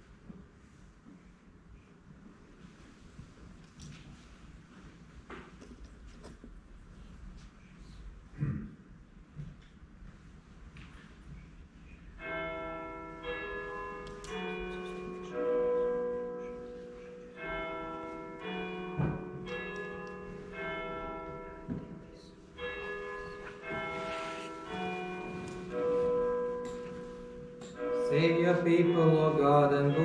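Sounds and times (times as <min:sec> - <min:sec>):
church bells ringing: 0:12.2 - 0:30.0.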